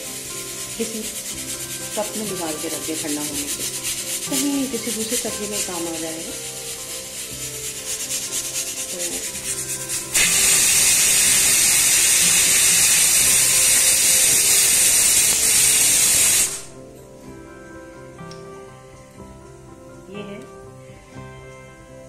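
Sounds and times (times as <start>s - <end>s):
loud steady hiss: 0.0s - 16.8s
oil crackling in a frying pan: 9.0s - 16.7s.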